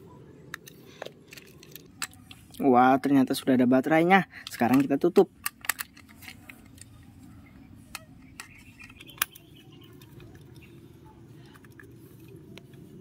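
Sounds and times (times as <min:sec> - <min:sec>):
small plastic clicks: 0:04.4 - 0:07.1, 0:07.8 - 0:10.7.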